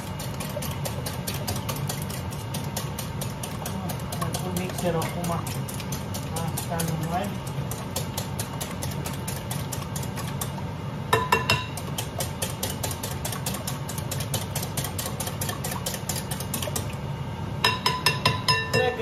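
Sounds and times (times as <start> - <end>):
whisk beating eggs in bowl: 0.0 - 19.0
whisk clinking against glass: 11.1 - 16.8, 17.6 - 19.0.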